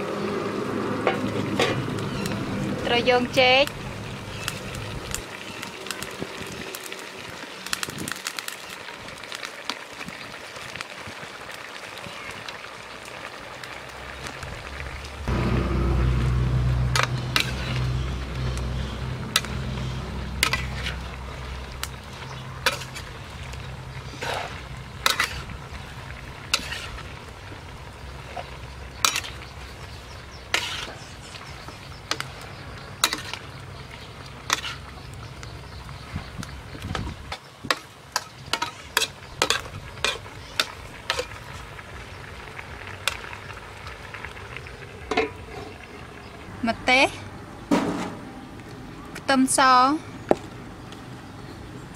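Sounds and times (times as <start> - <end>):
frying sizzle: 0.0 - 51.4
metal spatula scraping wok: 1.0 - 3.0, 15.3 - 25.7, 26.4 - 27.2, 28.3 - 29.5, 30.3 - 31.4, 33.0 - 33.5, 34.4 - 35.0, 37.7 - 41.4
low hum: 14.7 - 26.5.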